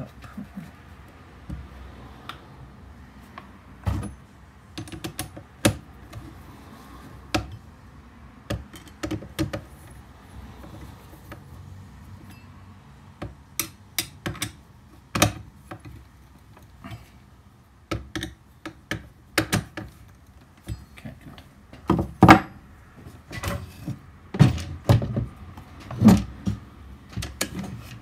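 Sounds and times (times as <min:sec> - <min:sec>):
sharp clicks and light knocks: 0:03.3 - 0:06.3, 0:23.3 - 0:28.0
metal rod tapping on wood: 0:13.2 - 0:14.6.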